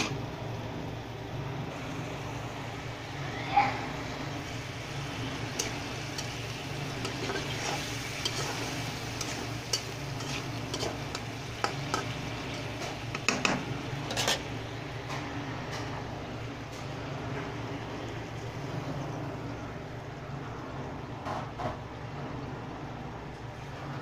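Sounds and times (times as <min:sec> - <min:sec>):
gravy sizzling: 0:00.0 - 0:21.0
spatula scraping pan: 0:05.2 - 0:14.6.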